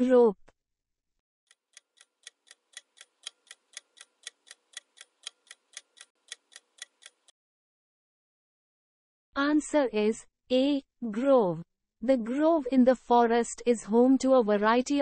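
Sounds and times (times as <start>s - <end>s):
quick clock ticking: 1.6s - 7.3s.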